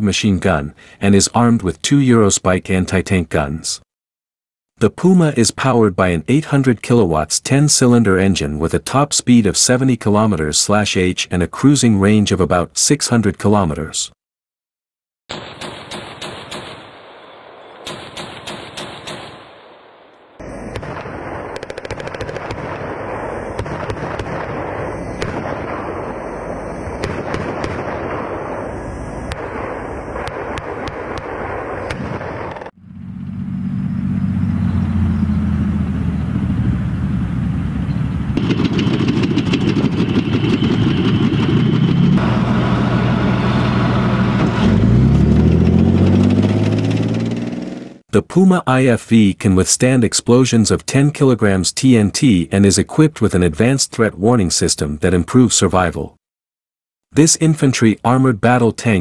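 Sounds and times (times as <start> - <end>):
automatic cannon rapid fire: 15.3 - 32.8, 38.4 - 43.6
tank diesel engines driving past: 32.8 - 48.0.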